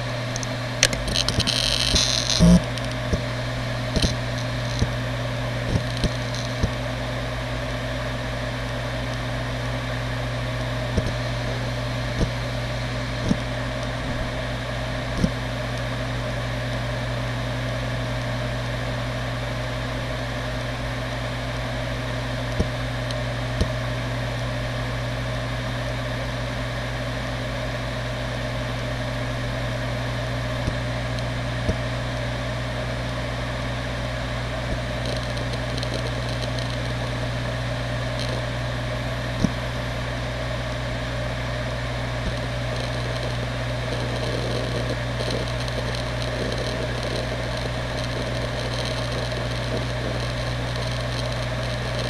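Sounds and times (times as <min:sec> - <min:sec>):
hard drive seek ticks: 0:00.0 - 0:07.0, 0:09.0 - 0:16.3, 0:22.3 - 0:23.9, 0:29.1 - 0:40.0, 0:40.6 - 0:52.0
hard drive spinning hum: 0:00.0 - 0:52.0.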